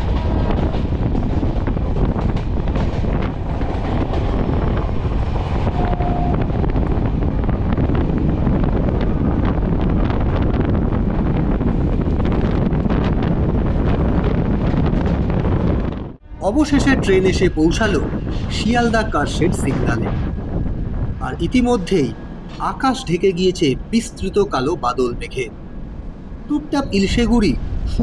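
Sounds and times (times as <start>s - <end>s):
train rumble and rattle: 0.0s - 28.0s
wind buffeting microphone: 0.0s - 28.0s.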